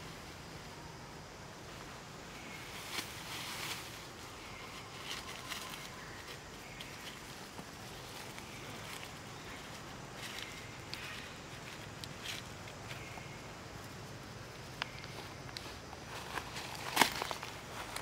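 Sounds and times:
faint steady hiss: 0.0 - 18.0
dry leaves crunching underfoot: 2.4 - 13.6, 14.8 - 18.0.

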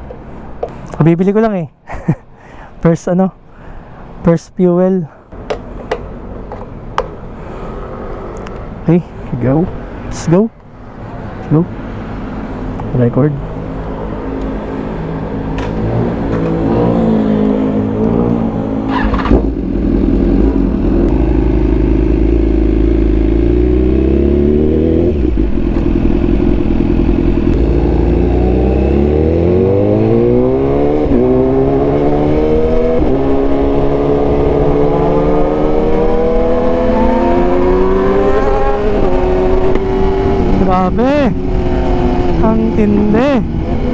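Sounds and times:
motorcycle engine accelerating: 15.6 - 43.9.

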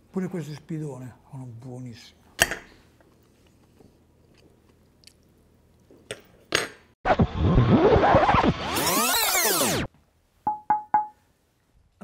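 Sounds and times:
tape rewind sound effect: 7.1 - 9.9.

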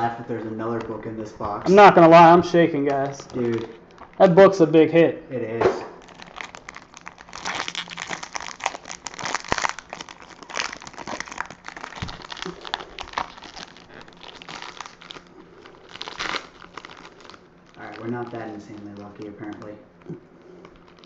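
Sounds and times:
foil wrapper tearing and crinkling: 2.9 - 4.2, 6.0 - 21.0.

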